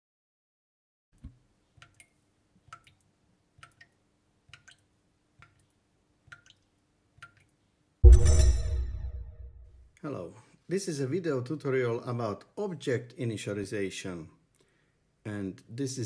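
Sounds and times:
faint drip-like clicks: 0:01.2 - 0:07.6.

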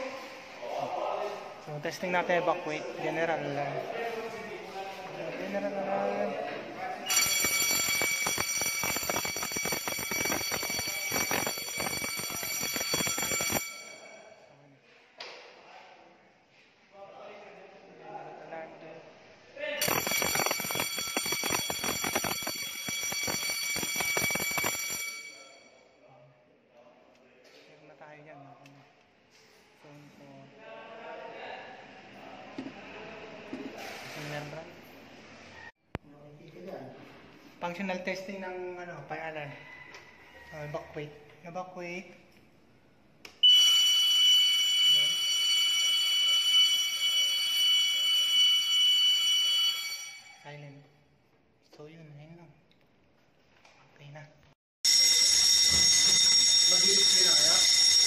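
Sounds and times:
fire alarm bell ringing: 0:07.0 - 0:14.5, 0:19.8 - 0:26.0, 0:43.4 - 0:50.9, 0:54.8 - 0:58.0.

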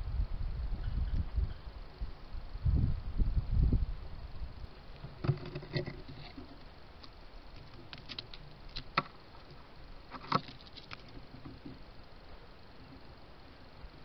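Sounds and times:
squirrel claws scratching: 0:05.2 - 0:09.5, 0:10.1 - 0:11.7.

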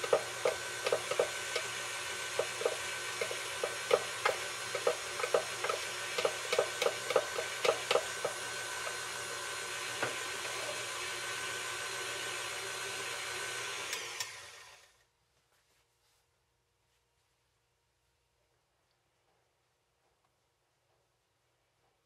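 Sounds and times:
whisk ticking: 0:00.0 - 0:14.4
stand mixer motor whine: 0:00.0 - 0:15.0.

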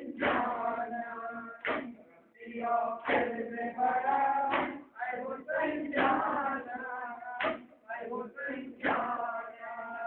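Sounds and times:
men chanting in unison: 0:00.0 - 0:10.0
chest-beating slaps: 0:01.6 - 0:02.0, 0:03.0 - 0:03.4, 0:04.5 - 0:04.9, 0:05.9 - 0:06.3, 0:07.4 - 0:07.8.

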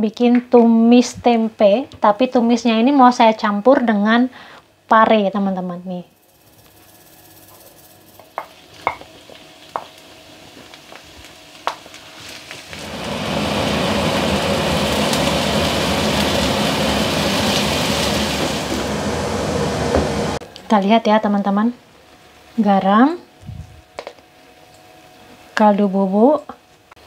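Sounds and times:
vegetables sizzling in hot oil: 0:06.2 - 0:20.4
wooden spoon stir-frying: 0:06.6 - 0:20.2.

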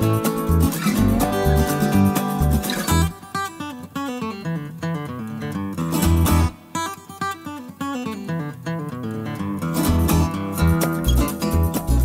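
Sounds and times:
low bass notes: 0:00.0 - 0:03.1
plucked guitar quick runs: 0:00.0 - 0:03.3, 0:09.8 - 0:12.0.

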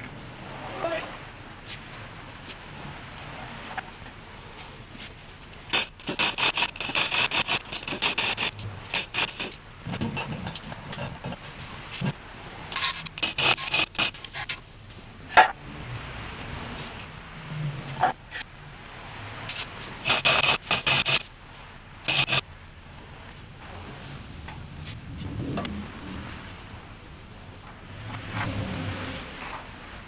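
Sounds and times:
rapid ratchet-like rasping: 0:05.7 - 0:11.4, 0:12.7 - 0:14.4, 0:19.8 - 0:21.3, 0:22.1 - 0:22.4.

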